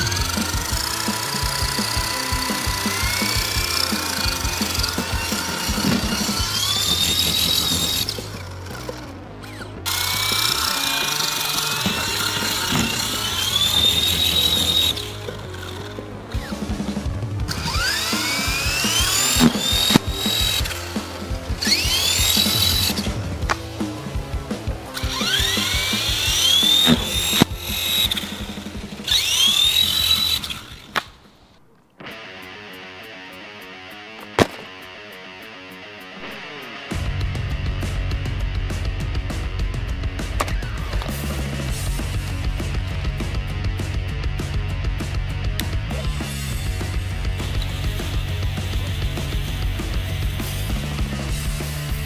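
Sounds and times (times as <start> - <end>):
helicopter motor whining: 0.0 - 31.5
background music: 0.0 - 52.0.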